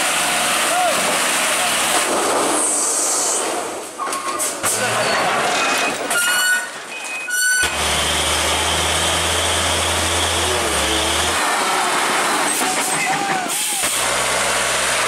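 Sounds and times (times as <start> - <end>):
heavy diesel trucks working: 0.0 - 15.0
truck diesel engine droning: 7.6 - 15.0.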